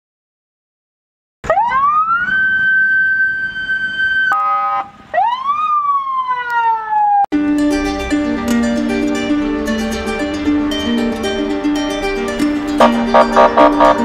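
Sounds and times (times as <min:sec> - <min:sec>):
police siren wailing: 0:01.4 - 0:07.3, 0:12.8 - 0:14.0
blaring horn tone: 0:04.3 - 0:05.0, 0:12.8 - 0:14.0.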